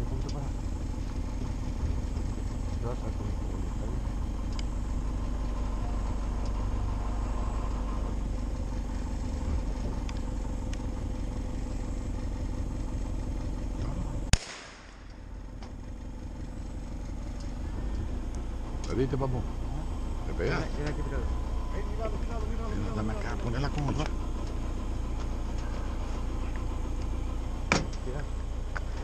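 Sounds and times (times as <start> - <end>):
vehicle engine running: 0.0 - 29.0
loud gunshot: 14.3 - 15.1.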